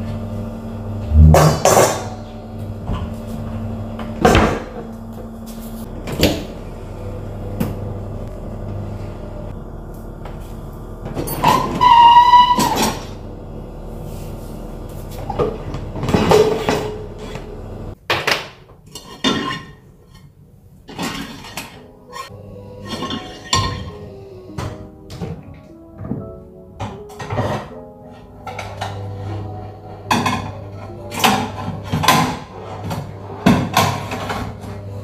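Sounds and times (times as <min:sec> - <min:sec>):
dishwasher rack scraping and squealing: 0:11.2 - 0:13.2, 0:15.2 - 0:17.6, 0:18.9 - 0:20.3, 0:20.9 - 0:24.5, 0:27.0 - 0:35.0
dishes and cutlery clinking: 0:18.9 - 0:20.3, 0:20.9 - 0:25.4, 0:30.0 - 0:34.6.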